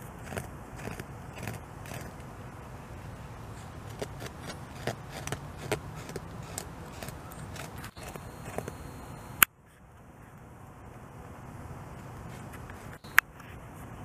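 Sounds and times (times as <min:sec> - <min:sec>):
beaver gnawing wood: 0:00.0 - 0:02.3, 0:03.6 - 0:09.4.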